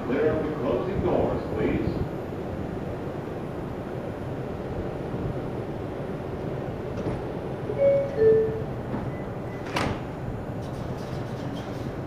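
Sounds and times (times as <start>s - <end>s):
standing train hum: 0.0s - 12.0s
train doors sliding shut: 6.4s - 12.0s
two-tone falling door chime: 7.7s - 9.7s.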